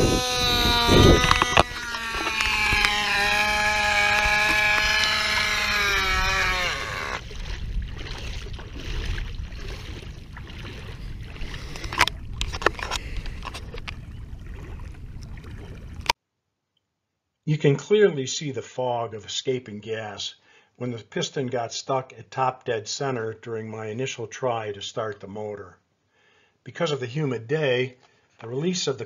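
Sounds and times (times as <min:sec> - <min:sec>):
model motor buzzing whine: 0:00.0 - 0:07.2
outdoor noise: 0:00.0 - 0:17.1
sharp clicks: 0:00.4 - 0:07.2.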